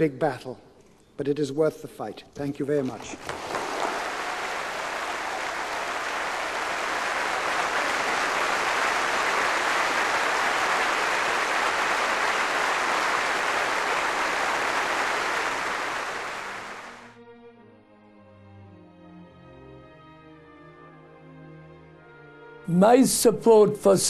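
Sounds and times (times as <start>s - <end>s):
large crowd applauding: 3.2s - 17.2s.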